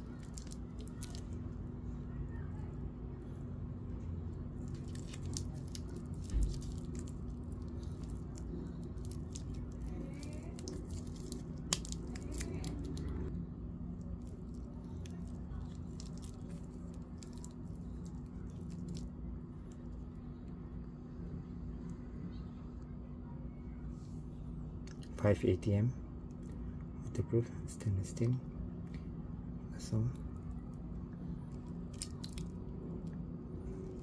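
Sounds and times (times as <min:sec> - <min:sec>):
plastic film crinkling: 0:00.0 - 0:01.6, 0:04.6 - 0:13.3, 0:14.0 - 0:20.0, 0:31.5 - 0:34.0
steady low hum: 0:00.0 - 0:34.0.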